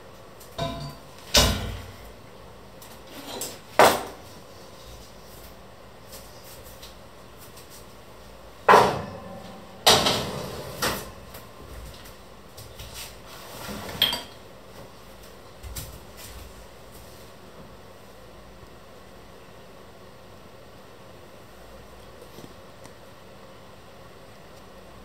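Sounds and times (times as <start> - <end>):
metallic ring: 0.6 - 1.2
kitchenware clattering on wood: 0.6 - 1.8.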